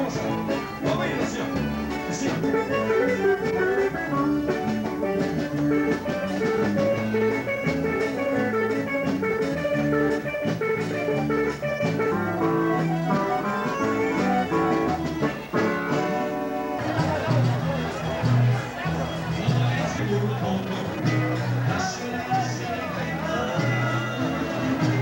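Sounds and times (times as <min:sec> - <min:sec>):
live band with electric guitar: 0:00.0 - 0:25.0.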